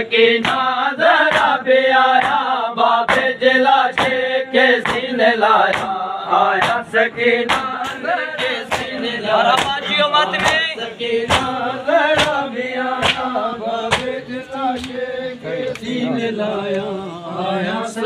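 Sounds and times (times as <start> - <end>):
men chanting in unison: 0.0 - 18.0
chest-beating slaps: 0.4 - 0.7, 1.3 - 1.6, 3.1 - 4.2, 4.8 - 6.0, 6.6 - 9.8, 10.4 - 10.7, 11.3 - 12.4, 13.0 - 14.2.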